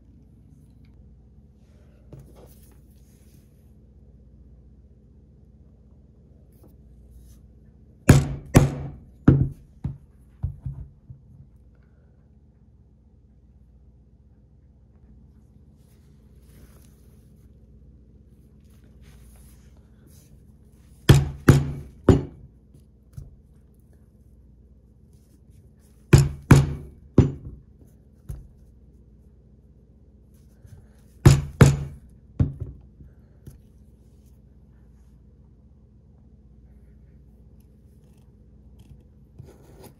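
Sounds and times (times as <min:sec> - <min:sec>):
mallet striking metal punch: 0:08.1 - 0:09.5, 0:21.1 - 0:22.4, 0:26.2 - 0:27.5, 0:31.3 - 0:32.0.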